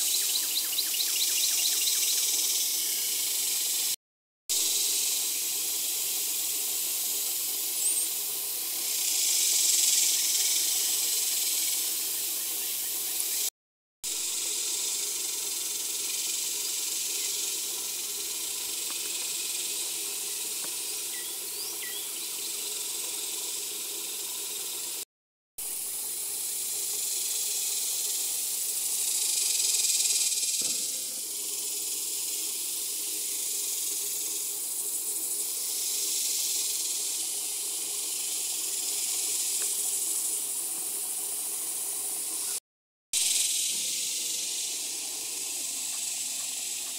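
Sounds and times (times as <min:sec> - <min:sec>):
insects buzzing: 0:00.0 - 0:13.5, 0:14.1 - 0:25.0, 0:25.6 - 0:42.6, 0:43.2 - 0:46.9
faint bird chirps: 0:20.2 - 0:22.7.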